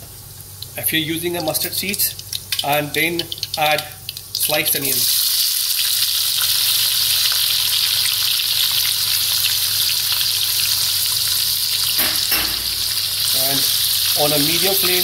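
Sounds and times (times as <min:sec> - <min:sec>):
onions sizzling in oil: 0:01.4 - 0:15.0.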